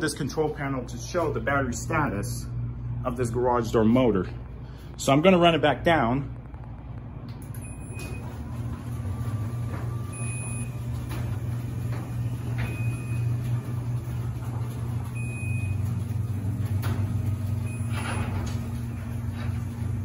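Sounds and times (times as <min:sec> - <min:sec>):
garage door opener motor hum: 0:06.3 - 0:20.0.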